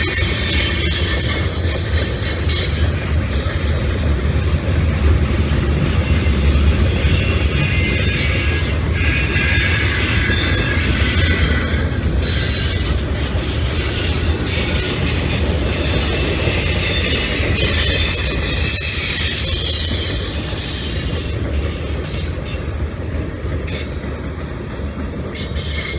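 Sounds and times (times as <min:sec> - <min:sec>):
freight cars rumbling: 0:00.0 - 0:25.9
high-pitched wheel squeal: 0:06.2 - 0:22.0.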